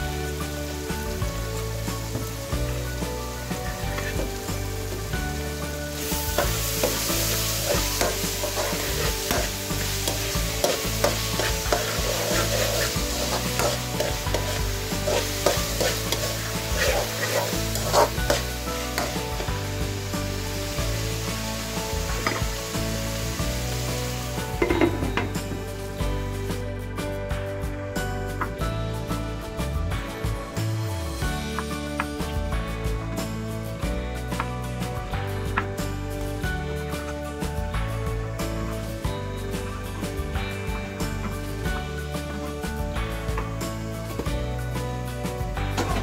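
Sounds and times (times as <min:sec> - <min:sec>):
food sizzling in oil: 0:00.0 - 0:26.6
utensil scraping pan: 0:06.3 - 0:19.4.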